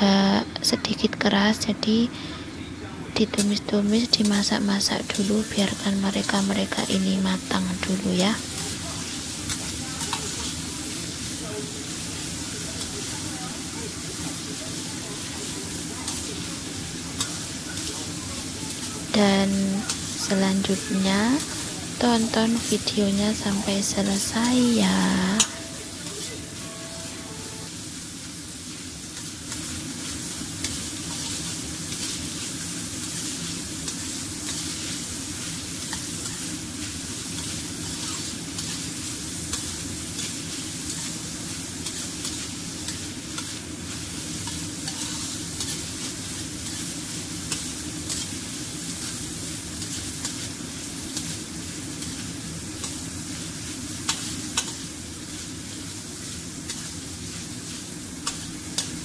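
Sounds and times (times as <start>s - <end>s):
food sizzling in oil: 3.2s - 59.0s
metal spatula scraping wok: 41.8s - 46.0s.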